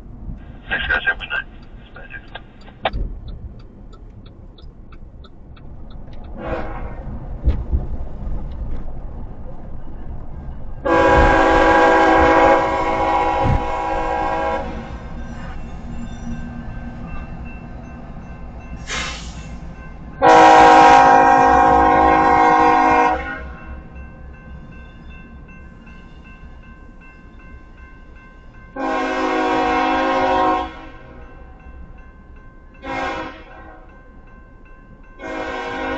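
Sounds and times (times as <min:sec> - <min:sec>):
diesel engine rumble: 0:00.0 - 0:11.8
locomotive horn blasts: 0:06.4 - 0:06.9, 0:10.8 - 0:15.0, 0:20.2 - 0:23.6, 0:28.8 - 0:31.2, 0:32.8 - 0:33.9, 0:35.2 - 0:35.9.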